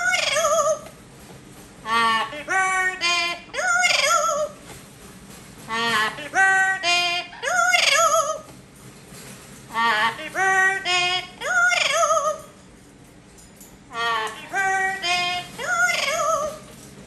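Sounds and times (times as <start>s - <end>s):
parrot singing high wavering notes: 0.0s - 0.9s, 1.9s - 4.6s, 5.7s - 8.5s, 9.8s - 12.6s, 13.9s - 16.7s.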